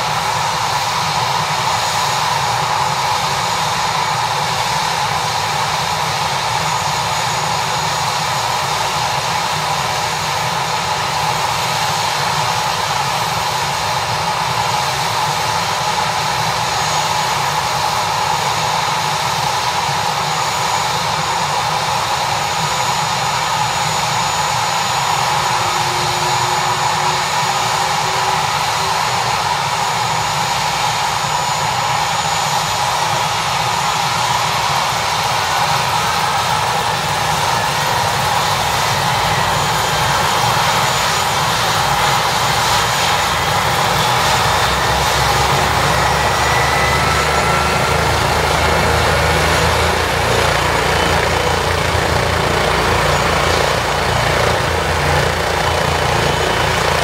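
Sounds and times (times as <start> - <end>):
helicopter engines and rotor: 0.0 - 57.0.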